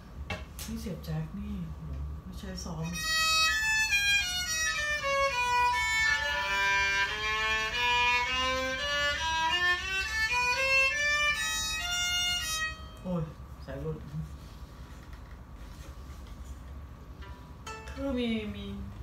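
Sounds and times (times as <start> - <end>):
violin bowing a scale: 3.0 - 13.0.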